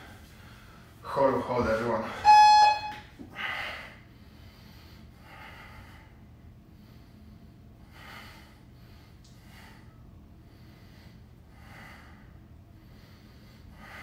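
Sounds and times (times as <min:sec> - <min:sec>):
faint steady low hum: 0:00.0 - 0:14.0
man breathing hard: 0:03.3 - 0:14.0.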